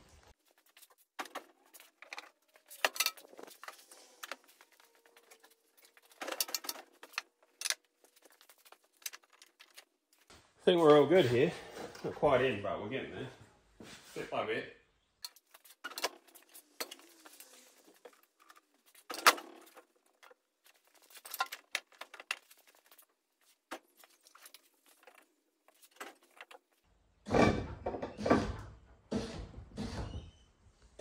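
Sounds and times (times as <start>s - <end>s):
rustling: 0.0s - 10.4s, 15.3s - 26.8s
metal clinks and knocks: 1.2s - 4.4s.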